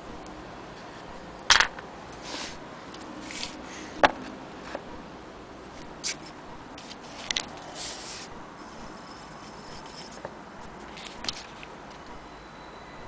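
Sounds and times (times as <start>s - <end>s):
hands rubbing on wood: 3.2s - 3.6s.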